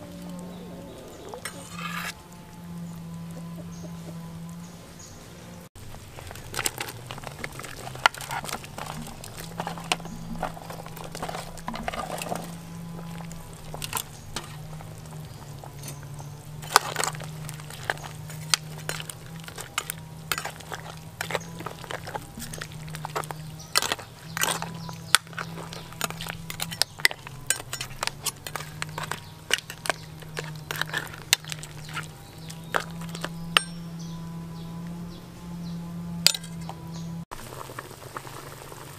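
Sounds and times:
steady low hum: 0.0 - 38.0
utensils and dishes clinking: 6.2 - 34.0.

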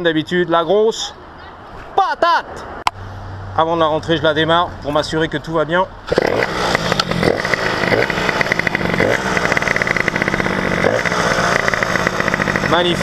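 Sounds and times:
moped two-stroke engine revving: 6.0 - 13.0.

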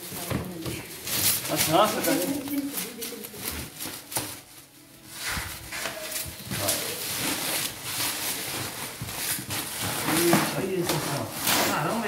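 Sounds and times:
bubble wrap rustling and crinkling: 0.0 - 12.0.

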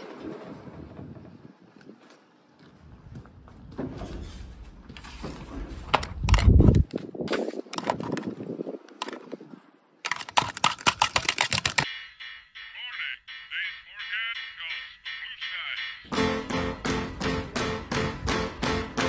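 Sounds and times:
phone handling noise: 6.0 - 9.2, 10.0 - 11.9
rapid sharp clicks: 10.0 - 13.4.

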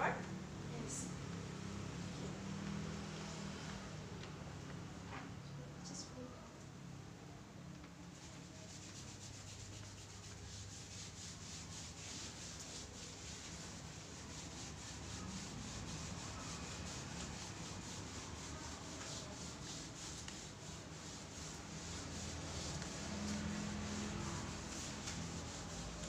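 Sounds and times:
eraser wiping a whiteboard: 8.0 - 26.0.

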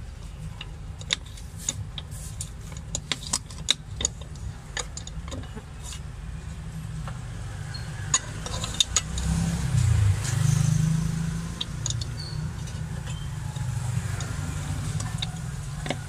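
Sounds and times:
vehicle passing on road: 5.8 - 16.0.

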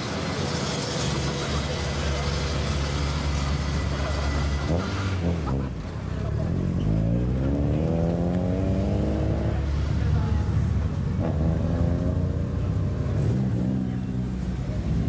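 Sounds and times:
second car engine approaching: 0.0 - 15.0
car engine accelerating past: 6.3 - 15.0.

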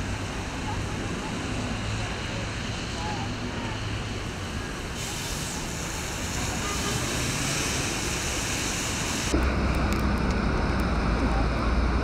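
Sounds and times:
slow city traffic hiss: 0.0 - 12.0
tyres on wet pavement: 0.0 - 12.0.

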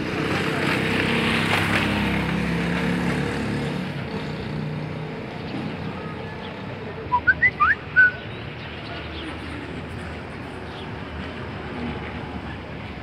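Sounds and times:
vehicle engine passing by: 0.0 - 8.1
bird chirps: 7.1 - 8.6.

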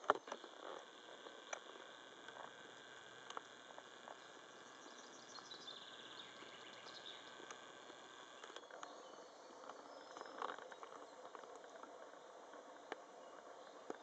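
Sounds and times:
small clicks: 0.0 - 4.9, 6.4 - 9.0
insects chirping: 0.0 - 12.2.

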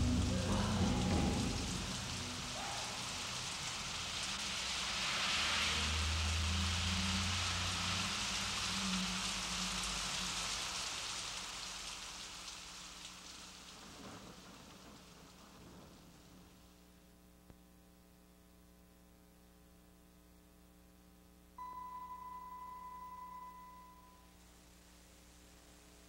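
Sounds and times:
low rumble: 0.0 - 12.5
rain-like hiss: 0.0 - 26.0.

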